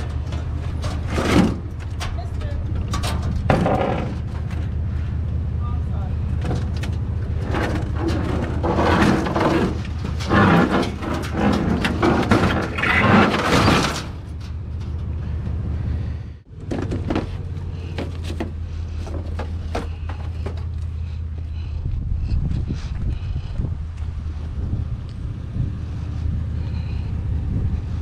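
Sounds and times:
junk clattering and scraping: 0.0 - 5.5, 6.1 - 21.7
steady low rumble: 0.0 - 13.2, 14.0 - 28.0.

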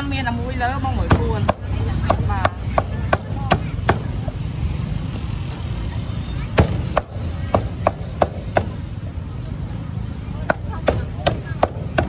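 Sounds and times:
low traffic rumble: 0.0 - 12.0
voices: 0.0 - 12.0
cleaver chopping meat on wood: 1.0 - 4.1, 6.6 - 8.7, 10.4 - 12.0.

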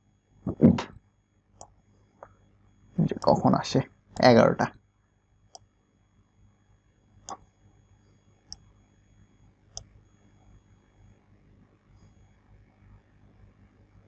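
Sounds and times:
low steady hum: 0.0 - 14.0
faint computer mouse clicks: 8.5 - 8.7.

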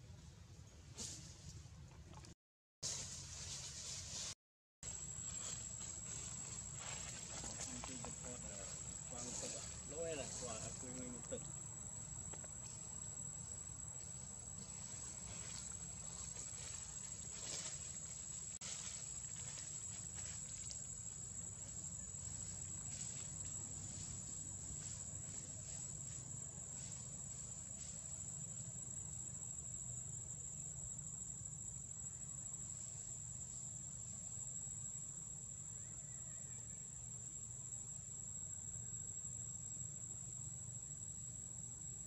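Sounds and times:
insects buzzing: 2.9 - 42.0.

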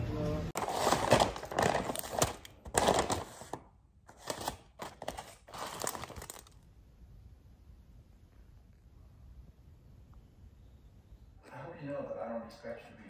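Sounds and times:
aluminium foil crinkling: 0.6 - 6.6
paper bag rustling: 0.6 - 6.6.

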